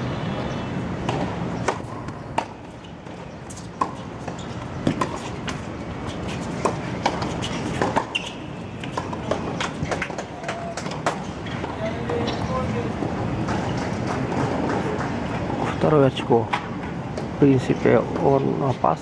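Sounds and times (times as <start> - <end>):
tennis balls struck by rackets: 0.9 - 12.5
balls bouncing on hard court: 1.0 - 15.3.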